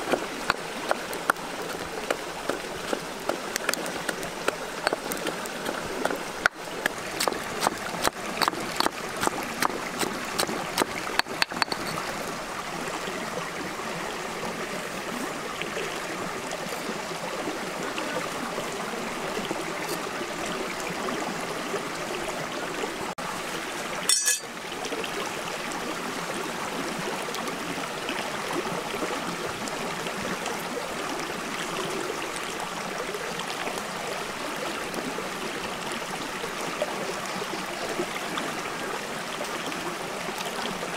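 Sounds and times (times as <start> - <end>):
stream water running: 0.0 - 40.9
pestle pounding in stone mortar: 10.4 - 11.9.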